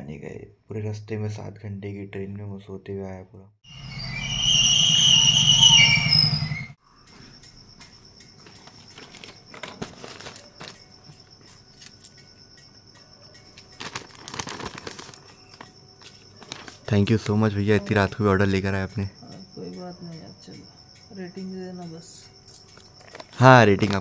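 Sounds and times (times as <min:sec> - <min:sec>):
loud high ringing tones: 0:03.7 - 0:06.8
crickets chirping: 0:03.7 - 0:24.0
rustling and knocks: 0:07.8 - 0:12.2.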